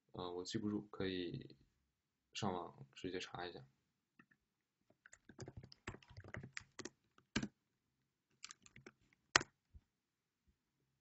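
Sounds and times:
typing on computer keyboard: 0:05.1 - 0:07.5, 0:08.4 - 0:09.5.

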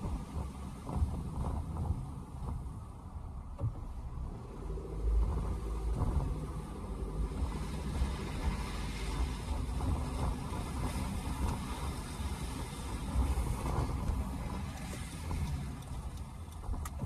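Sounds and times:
car engine rumble: 0:00.0 - 0:17.0
tyre hiss on wet road: 0:04.3 - 0:16.1.

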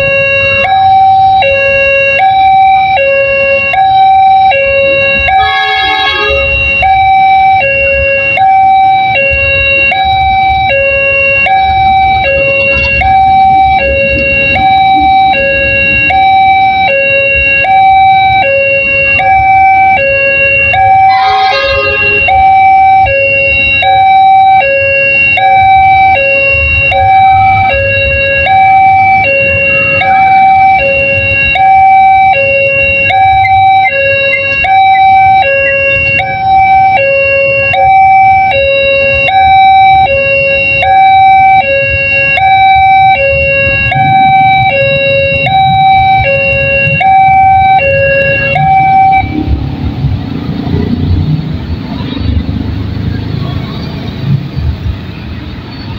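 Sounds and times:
two-tone level crossing alarm: 0:00.0 - 0:49.8
motorbike engines: 0:00.0 - 0:55.9
traffic noise: 0:00.0 - 0:55.9
passing train rumble: 0:04.9 - 0:08.0, 0:11.6 - 0:16.8, 0:20.8 - 0:23.1, 0:43.3 - 0:55.9.

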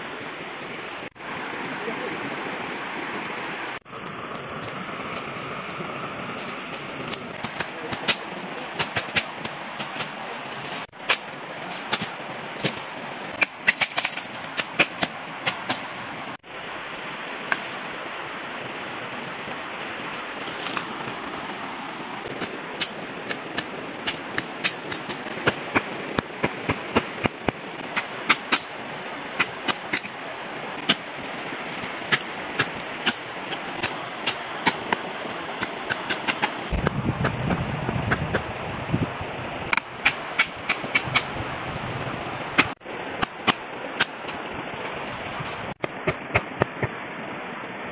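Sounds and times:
constant hiss: 0:00.0 - 0:47.9
wood crackling and snapping: 0:06.4 - 0:10.1.

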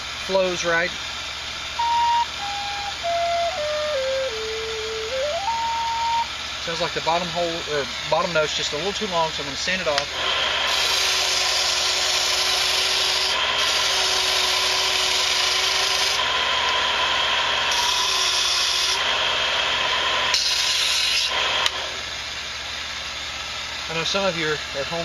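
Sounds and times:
sander rasping on wood: 0:06.8 - 0:16.8.

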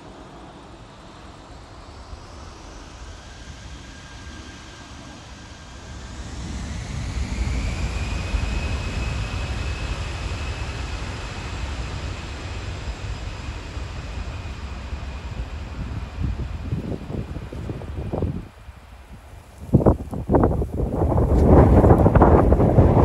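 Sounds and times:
jet engines spooling up: 0:00.0 - 0:23.0
wind buffeting microphone: 0:05.8 - 0:23.0.

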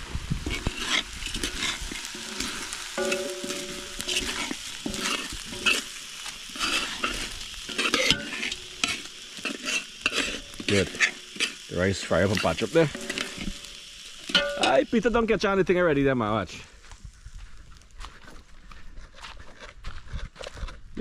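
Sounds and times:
rice and meat sizzling in a pot: 0:00.0 - 0:18.2
spoon scraping and clinking on pot: 0:00.5 - 0:14.8.

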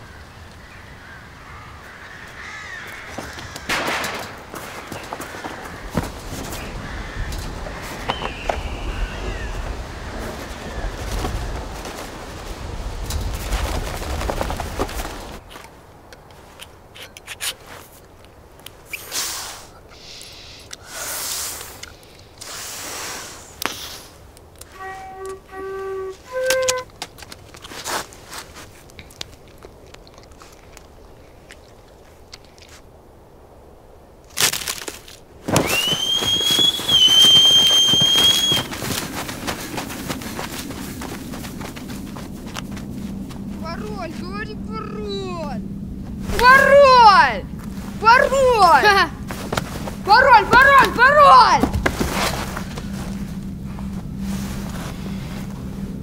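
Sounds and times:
rustling: 0:01.4 - 0:19.7, 0:21.3 - 0:33.0, 0:34.3 - 0:44.8, 0:45.6 - 0:56.0
footsteps running through dry grass: 0:02.4 - 0:15.8, 0:34.5 - 0:43.8, 0:49.2 - 0:56.0
loud bang: 0:03.7 - 0:04.6
short breathy hiss: 0:18.9 - 0:24.2
shrill whistle: 0:24.7 - 0:26.9, 0:35.6 - 0:38.9
low rumble: 0:38.6 - 0:56.0.

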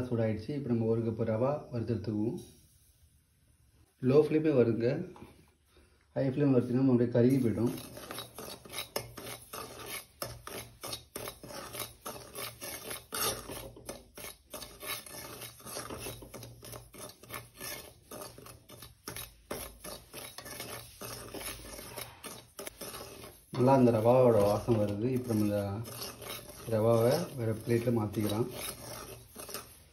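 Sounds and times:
metal spoon scraping dry semolina: 0:06.8 - 0:29.9.

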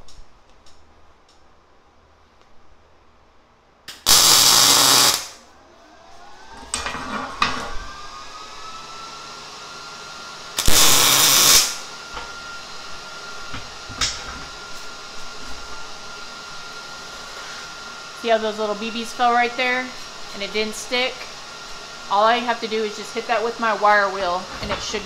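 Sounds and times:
welding arc buzzing and crackling: 0:03.9 - 0:05.4, 0:10.5 - 0:12.3.

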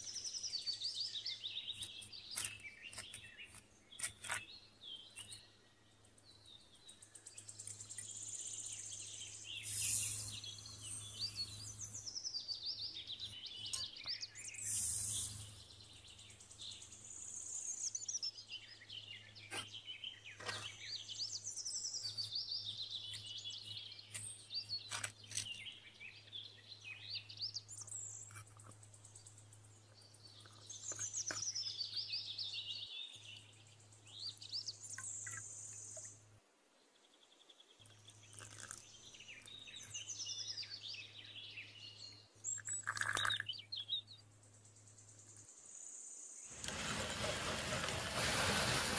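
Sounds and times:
small birds chirping: 0:00.0 - 0:47.3
short rushes of noise: 0:46.6 - 0:48.9.

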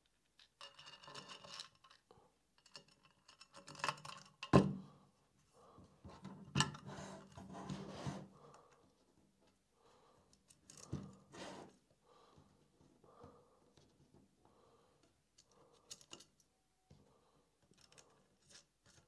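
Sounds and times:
small metal parts scraping and clicking: 0:00.3 - 0:04.5, 0:15.4 - 0:16.5, 0:17.7 - 0:19.0.

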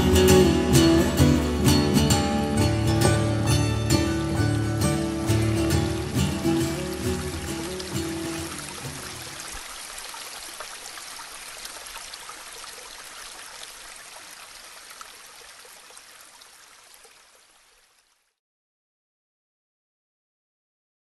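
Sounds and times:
stream flowing water: 0:00.0 - 0:18.4
small splashes: 0:04.4 - 0:18.3.

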